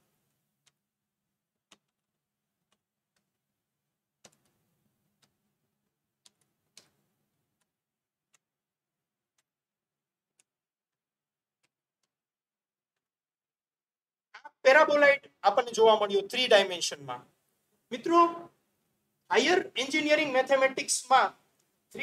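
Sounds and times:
keyboard keys clicking: 4.2s - 4.6s.

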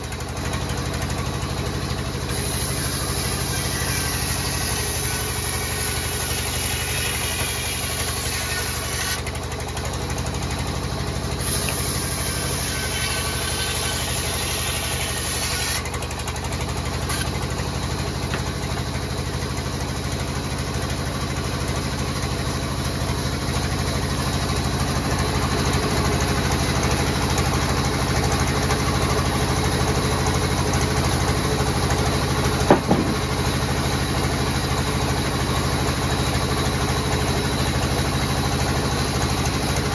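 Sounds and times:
band saw cutting wood: 0.0s - 19.3s, 23.6s - 39.9s
sharp knock: 32.7s - 33.3s.

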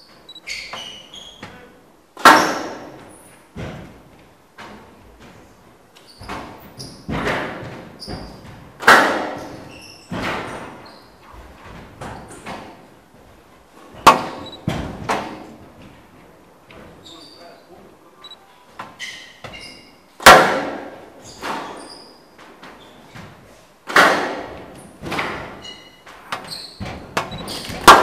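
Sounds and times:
shoes squeaking on court floor: 0.0s - 1.8s, 6.0s - 8.7s, 9.4s - 12.8s, 13.9s - 15.6s, 16.8s - 20.0s, 21.2s - 23.4s, 24.8s - 27.9s
squash ball hitting rackets and walls: 0.0s - 16.0s, 18.8s - 28.0s.

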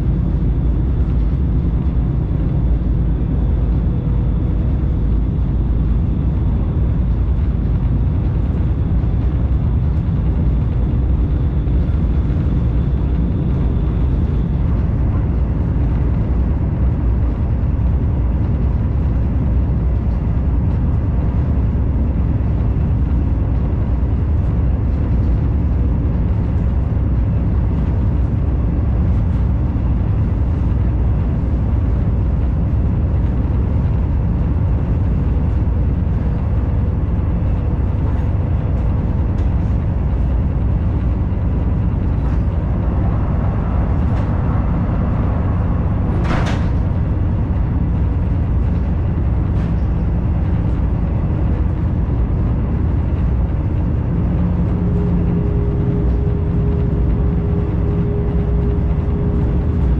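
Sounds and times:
train rumbling on track: 0.0s - 59.9s.

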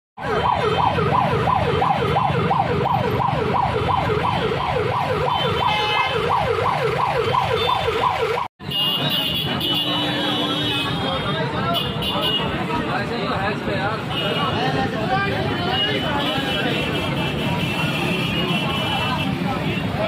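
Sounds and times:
electronic siren yelping: 0.2s - 8.5s.

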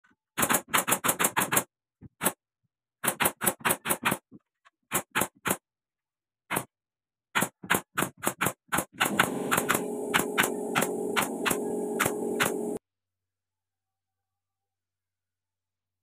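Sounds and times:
nail gun firing: 0.4s - 2.4s, 7.4s - 12.8s.

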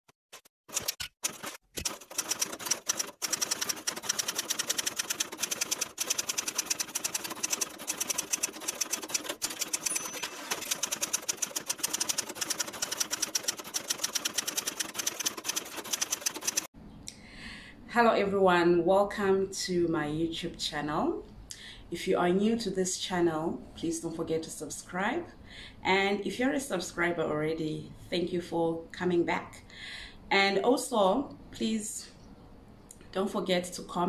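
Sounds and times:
rapid mechanical clicking: 0.4s - 16.7s.

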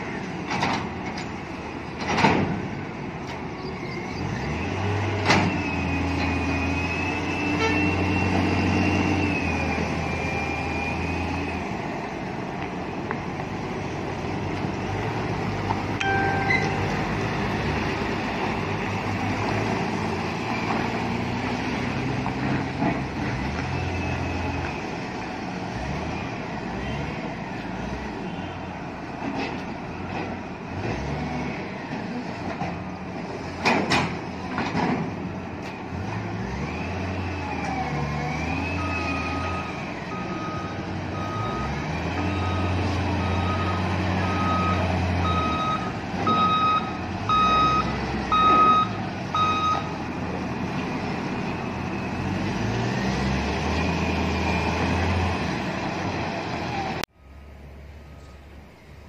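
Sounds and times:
heavy diesel engines revving: 0.0s - 59.0s
sharp metallic knocks: 16.0s - 17.2s
reversing alarm beeping: 38.5s - 50.0s.

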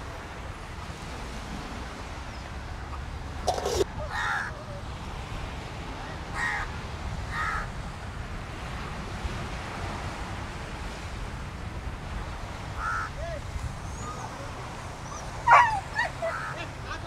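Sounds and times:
crows cawing: 3.5s - 4.5s, 6.4s - 6.7s, 7.3s - 7.7s, 12.8s - 13.2s, 15.5s - 17.0s.

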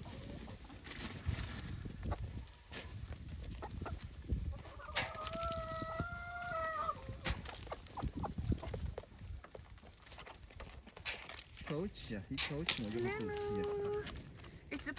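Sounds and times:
hens clucking: 0.0s - 11.4s
chicken long drawn-out call: 4.7s - 7.1s.

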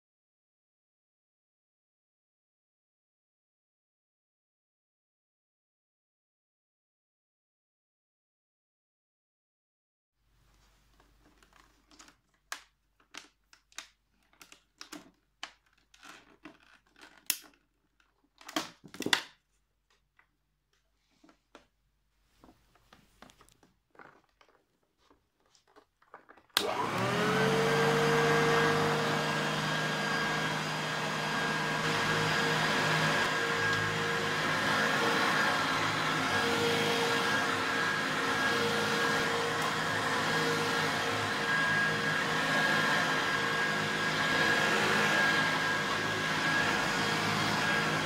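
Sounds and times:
vacuum cleaner motor whining: 25.4s - 48.0s.

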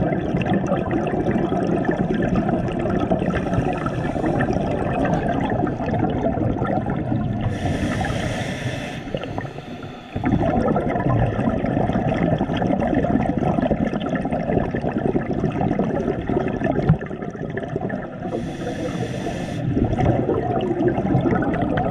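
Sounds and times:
gurgling exhaled bubbles: 0.0s - 21.9s
regulator inhale hiss: 3.3s - 4.8s, 7.4s - 10.4s, 18.2s - 19.8s.

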